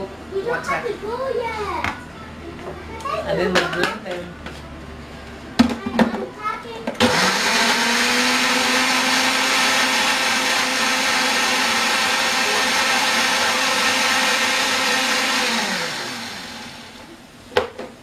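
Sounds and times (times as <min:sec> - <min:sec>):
blender motor winding down: 0:07.0 - 0:17.1
blender whirring: 0:07.0 - 0:17.2.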